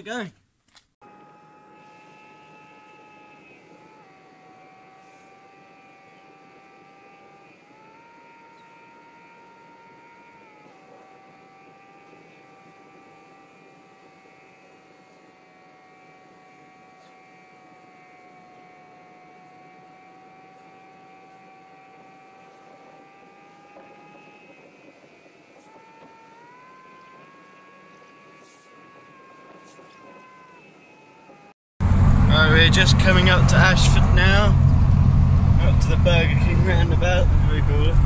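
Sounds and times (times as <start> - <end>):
car cabin whine: 1.0 - 38.0
car road rumble: 31.8 - 38.0.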